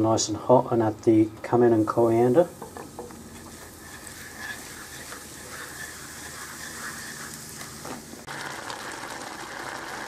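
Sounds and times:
spices sizzling in oil: 1.6s - 10.0s
wooden spoon stirring: 2.1s - 10.0s.

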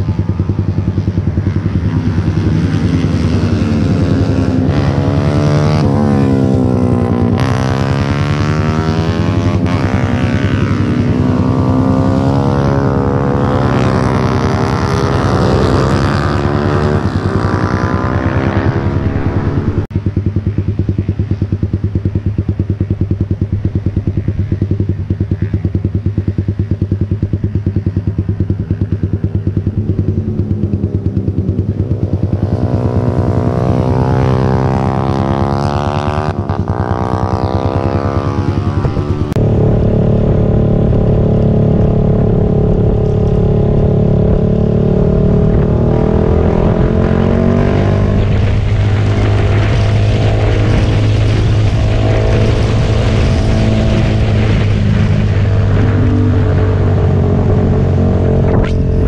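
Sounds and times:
motorcycles riding past: 0.0s - 59.0s
motorcycle engine idling: 18.9s - 34.7s.

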